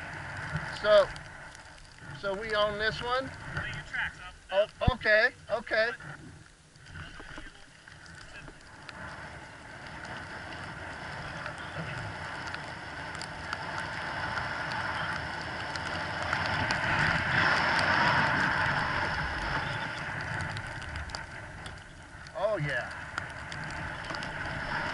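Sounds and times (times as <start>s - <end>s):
skis hissing over snow: 0.0s - 1.1s, 8.3s - 20.4s, 23.8s - 24.9s
wind buffeting microphone: 0.0s - 24.9s.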